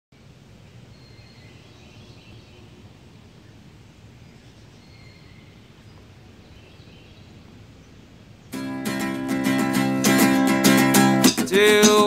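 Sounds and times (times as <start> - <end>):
bird chirps: 0.7 - 9.0.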